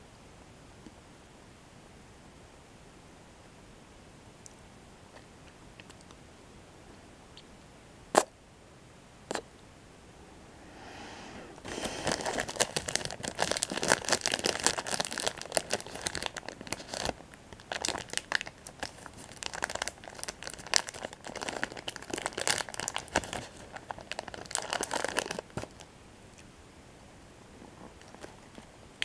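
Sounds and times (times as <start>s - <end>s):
plastic wrapper crinkling: 11.6s - 25.9s, 27.8s - 28.7s.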